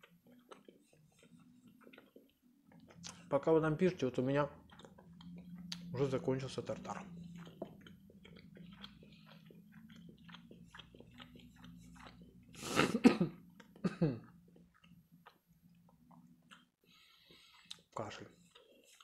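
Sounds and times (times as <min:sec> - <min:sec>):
chewing with wet mouth clicks: 0:00.0 - 0:12.6, 0:13.4 - 0:19.0
low steady hum: 0:00.0 - 0:19.0
throat noise like a cough: 0:12.5 - 0:14.5.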